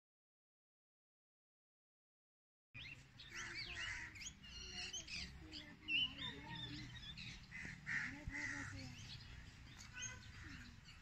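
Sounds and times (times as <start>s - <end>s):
small birds chirping: 2.8s - 11.0s.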